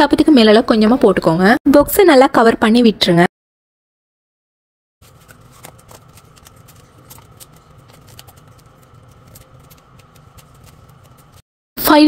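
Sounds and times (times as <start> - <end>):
foil crinkling and clicking: 5.0 - 11.4
steady low hum: 5.0 - 11.4.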